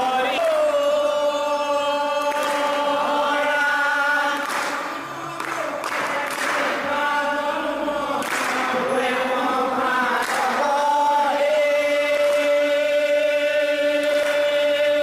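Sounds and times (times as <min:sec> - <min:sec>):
group chanting in unison: 0:00.0 - 0:15.0.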